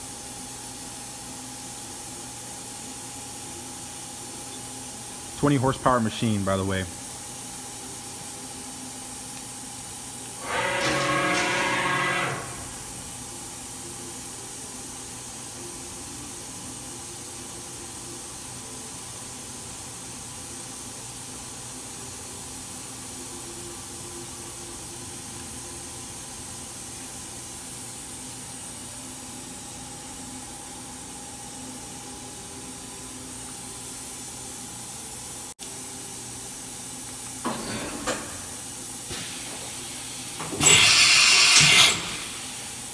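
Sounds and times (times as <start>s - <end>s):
machining center hiss and hum: 0.0s - 42.9s
loud buzzing tone: 10.4s - 13.1s.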